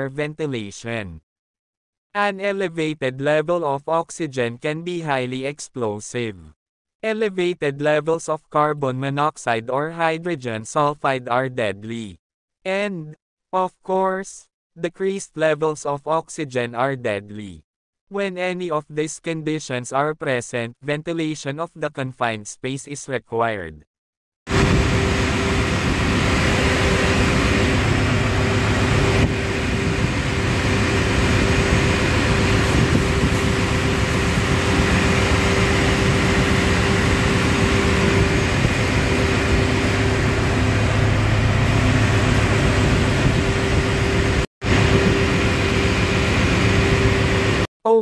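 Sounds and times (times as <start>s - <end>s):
ventilation blower hum: 24.5s - 47.6s.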